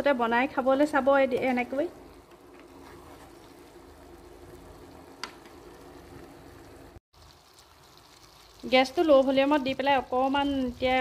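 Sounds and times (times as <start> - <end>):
syrup bubbling: 2.2 - 9.0.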